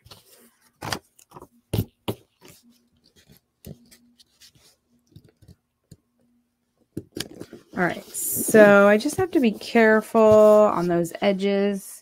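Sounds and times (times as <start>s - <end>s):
cardstock rustling and sliding: 7.2s - 11.1s.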